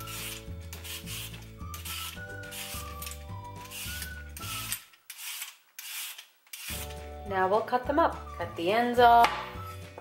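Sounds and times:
peeler scraping sweet potato skin: 0:00.0 - 0:07.0.

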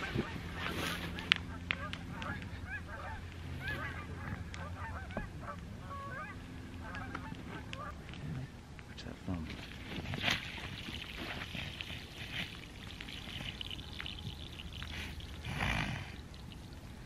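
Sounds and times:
fowl honking: 0:00.0 - 0:08.0
low steady hum: 0:00.0 - 0:17.0.

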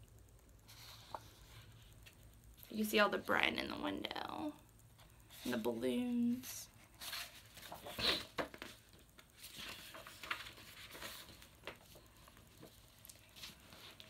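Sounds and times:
book pages rustling: 0:00.7 - 0:02.2, 0:06.9 - 0:14.0.

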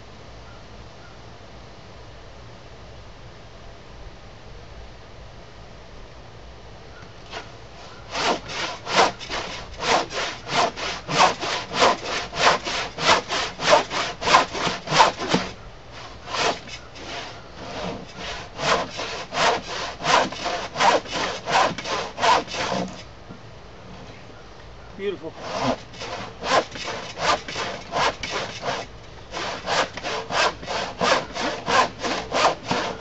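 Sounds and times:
handsaw cutting wood: 0:07.3 - 0:23.1, 0:25.3 - 0:33.0.

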